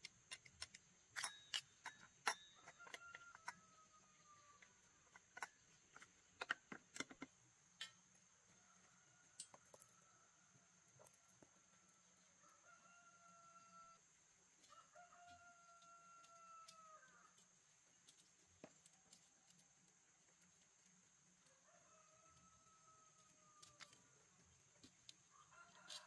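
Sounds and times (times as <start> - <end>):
distant roosters crowing: 2.2 - 5.5, 8.4 - 17.4, 21.4 - 24.3, 25.2 - 26.0.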